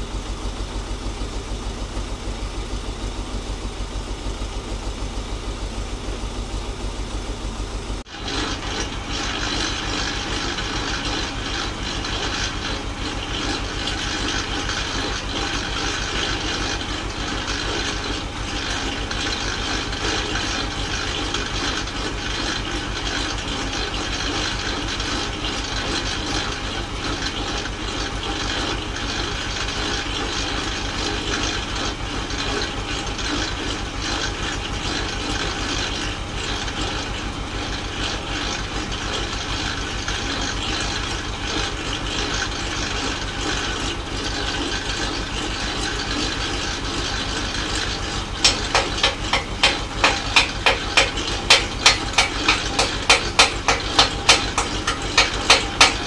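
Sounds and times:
tractor engine idling: 0:00.0 - 0:56.0
hammer striking steel frame: 0:48.4 - 0:56.0.

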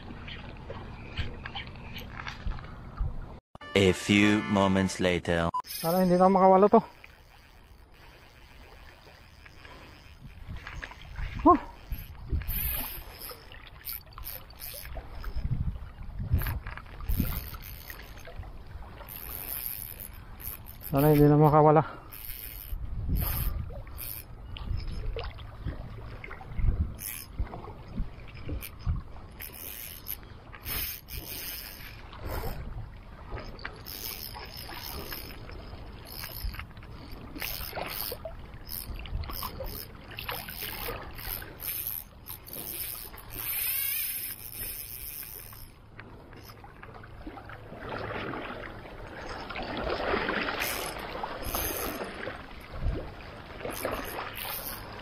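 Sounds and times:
water sloshing and splashing: 0:00.0 - 0:03.4, 0:05.8 - 0:55.0
fishing gear clicks and knocks: 0:05.6 - 0:15.6, 0:16.3 - 0:18.4, 0:19.0 - 0:25.6, 0:26.9 - 0:32.1, 0:33.4 - 0:46.6, 0:50.5 - 0:52.2, 0:53.6 - 0:55.0
wind on microphone: 0:09.9 - 0:13.2, 0:14.9 - 0:19.0, 0:22.5 - 0:29.5, 0:49.8 - 0:54.6.

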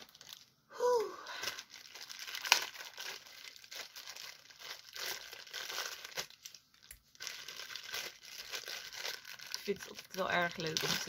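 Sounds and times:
plastic bag crinkling: 0:00.0 - 0:00.6, 0:01.3 - 0:11.0.

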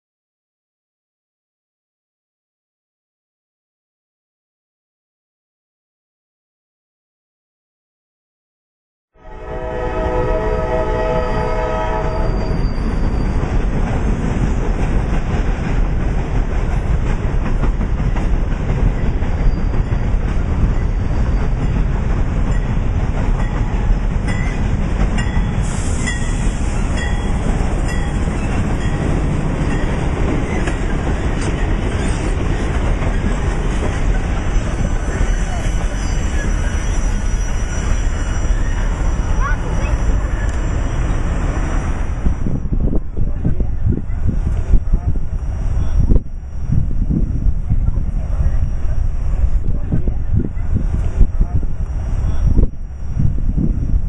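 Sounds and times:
locomotive air horn blast: 0:09.2 - 0:12.6
diesel locomotive rumble: 0:09.4 - 0:54.0
train wheels on rails: 0:09.6 - 0:54.0.

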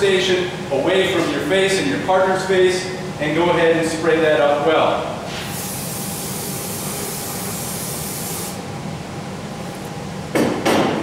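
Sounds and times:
aerosol spray hiss: 0:05.5 - 0:08.6.

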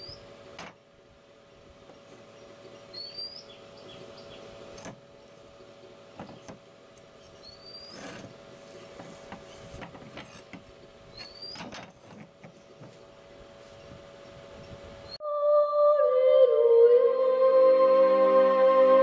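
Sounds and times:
steady hum: 0:00.0 - 0:19.0
metal and wood knocks and scrapes: 0:07.9 - 0:10.7, 0:11.6 - 0:13.1.

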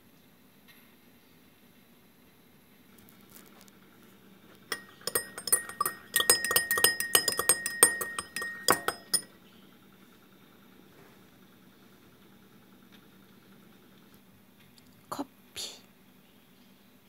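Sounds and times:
spoon clinking against cup: 0:04.6 - 0:09.3.

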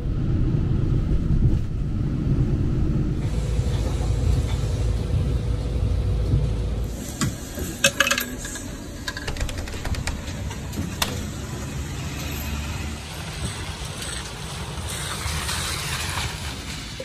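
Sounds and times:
bus engine rumbling: 0:00.0 - 0:17.0
street noise: 0:00.0 - 0:17.0
clicks and rattles: 0:07.8 - 0:11.2.

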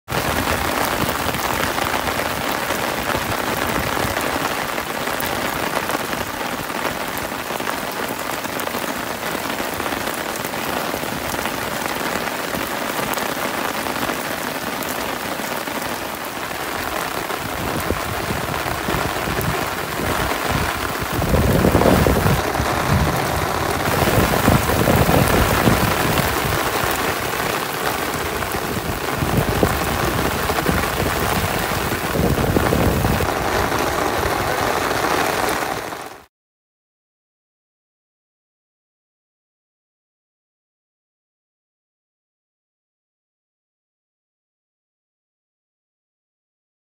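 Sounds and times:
heavy rain on concrete roof: 0:00.1 - 0:36.3.

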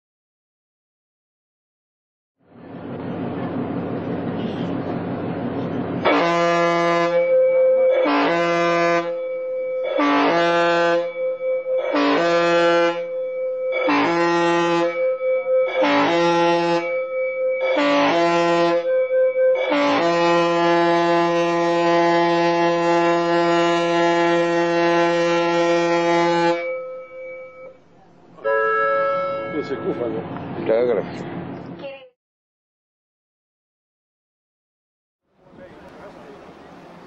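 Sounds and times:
ship horn blasts: 0:06.0 - 0:27.8, 0:28.4 - 0:30.3.

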